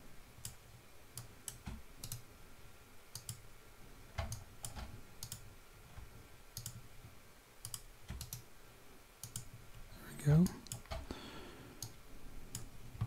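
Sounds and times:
mouse and keyboard clicking: 0:03.1 - 0:03.4, 0:04.2 - 0:05.4, 0:06.6 - 0:06.8, 0:07.6 - 0:08.4, 0:09.2 - 0:09.5.

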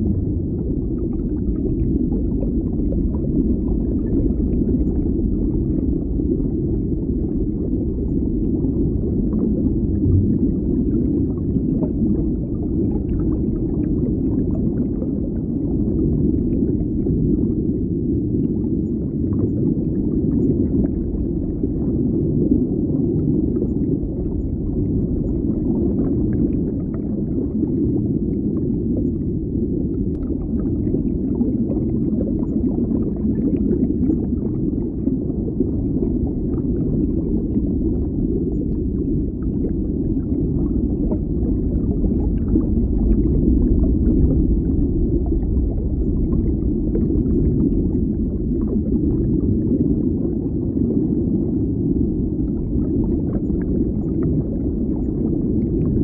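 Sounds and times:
underwater water bubbling: 0:00.0 - 0:56.0.

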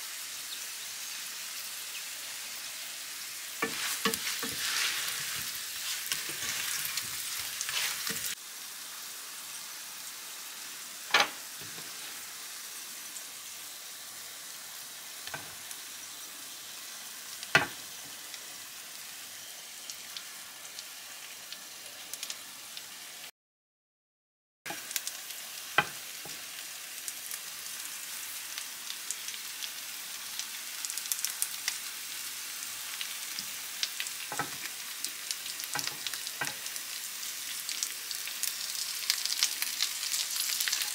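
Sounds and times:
potatoes sizzling in oil: 0:00.0 - 0:23.3, 0:24.7 - 0:40.9
spatula scraping pan: 0:03.6 - 0:08.4.

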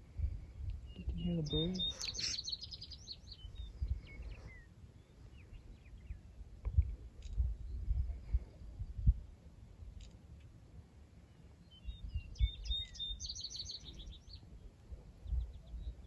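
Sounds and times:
wind rumbling on microphone: 0:00.0 - 0:16.0
songbird chirps and trill: 0:00.6 - 0:06.4, 0:11.3 - 0:16.0.

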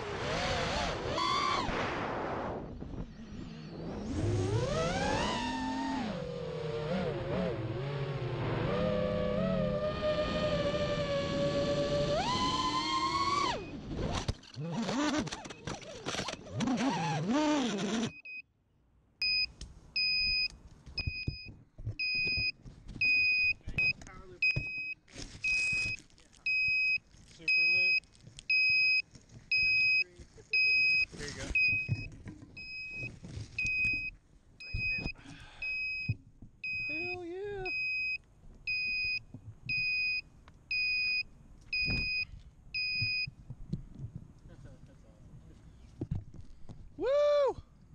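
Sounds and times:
drone motors whining: 0:00.0 - 0:18.2
short high beeps: 0:23.0 - 0:41.2.

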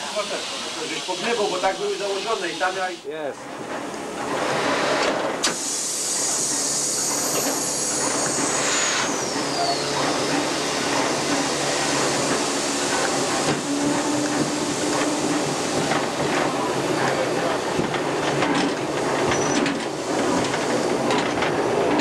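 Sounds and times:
steam locomotive hiss and rumble: 0:00.0 - 0:22.0
knocks and clatter: 0:13.4 - 0:22.0.

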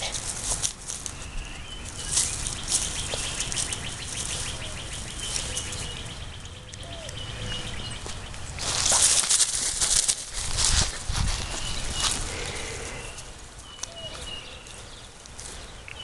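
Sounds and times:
dog crunching through leaves: 0:00.0 - 0:06.2, 0:08.0 - 0:12.9
birds chirping: 0:00.0 - 0:16.0.

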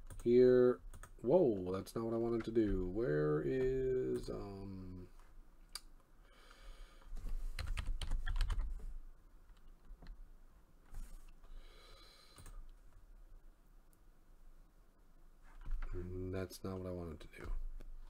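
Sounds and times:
keyboard keystrokes: 0:07.6 - 0:08.7.

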